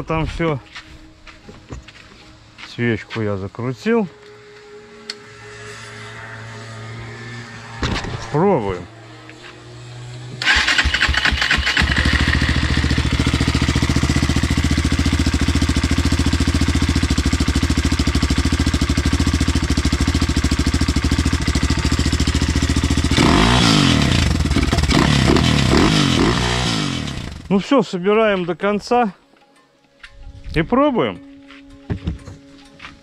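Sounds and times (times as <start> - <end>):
motorcycle engine starting and revving: 4.9 - 27.7.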